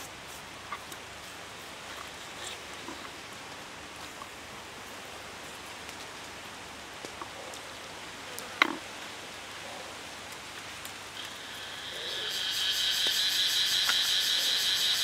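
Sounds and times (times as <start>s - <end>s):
steady hiss: 0.0s - 15.0s
faint ticks: 12.9s - 14.1s.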